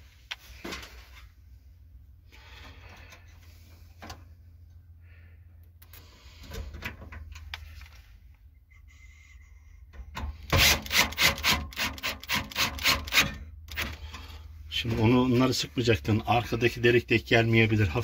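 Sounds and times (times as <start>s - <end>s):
screwdriver scraping: 10.5s - 14.0s.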